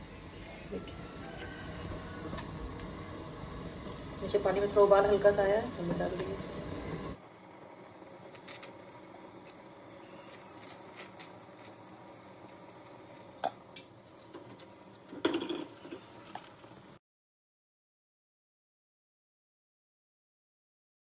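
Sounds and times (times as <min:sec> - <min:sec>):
ladle clinking on steel plates: 0:15.2 - 0:16.1.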